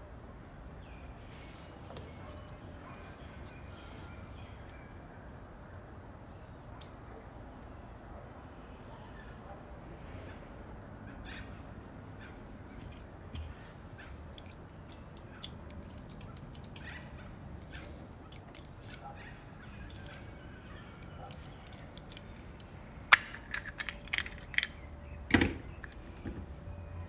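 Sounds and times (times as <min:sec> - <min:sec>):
metal pick clicking and scraping: 0:12.8 - 0:26.5.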